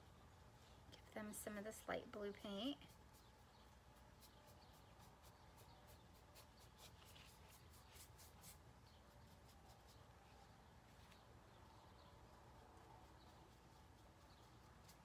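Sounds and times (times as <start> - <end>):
paintbrush strokes on canvas: 0.0 - 11.2.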